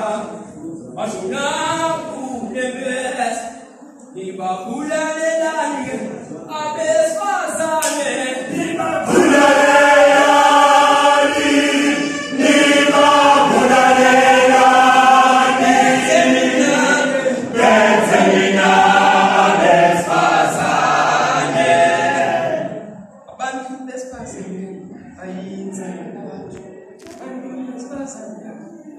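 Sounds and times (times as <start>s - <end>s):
male choir singing a cappella: 8.4s - 23.1s.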